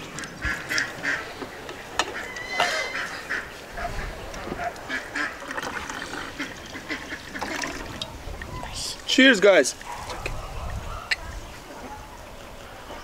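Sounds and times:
farmyard fowl honking and quacking: 0:00.1 - 0:07.7.

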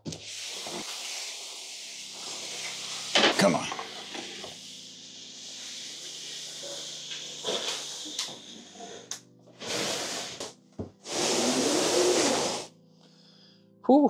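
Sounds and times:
cardboard box scraping across floor: 0:07.4 - 0:12.7.

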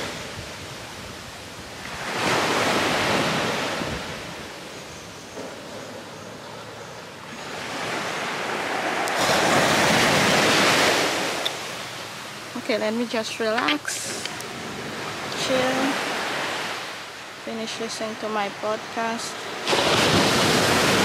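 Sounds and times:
ocean waves breaking on shore: 0:00.0 - 0:21.0.

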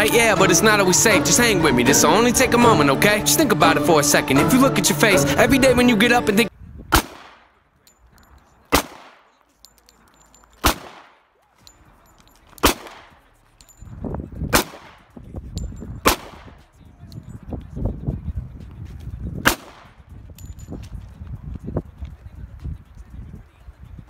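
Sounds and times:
pistol shots with echo: 0:06.9 - 0:07.5, 0:08.7 - 0:09.4, 0:10.6 - 0:11.3, 0:12.6 - 0:13.3, 0:14.5 - 0:15.2, 0:16.0 - 0:16.7, 0:19.4 - 0:20.0.

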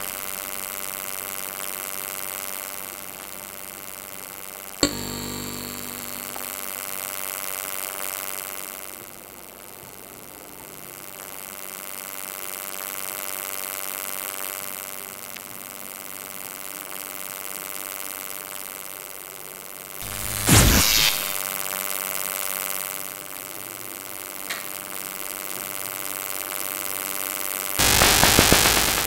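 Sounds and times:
electric buzzing hum: 0:04.8 - 0:07.4, 0:20.0 - 0:21.4, 0:27.8 - 0:29.0.

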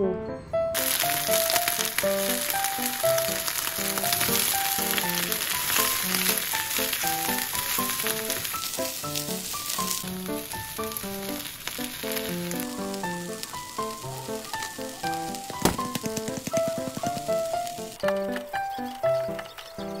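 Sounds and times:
light background music: 0:00.0 - 0:20.0
oil sizzling in frying pan: 0:00.8 - 0:19.3.

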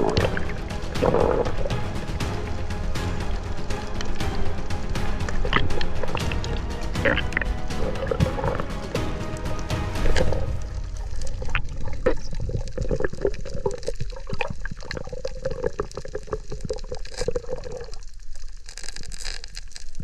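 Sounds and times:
water sloshing and bubbling: 0:00.0 - 0:20.0
small underwater clicks and pops: 0:11.4 - 0:20.0.

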